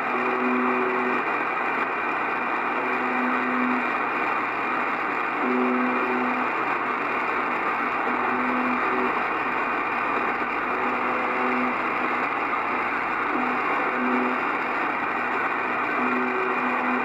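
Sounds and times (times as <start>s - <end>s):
shortwave static: 0.0s - 17.0s
short radio buzzes: 0.1s - 1.3s, 2.7s - 4.0s, 5.4s - 6.6s, 8.1s - 9.4s, 10.6s - 12.0s, 13.2s - 14.7s, 15.8s - 17.0s.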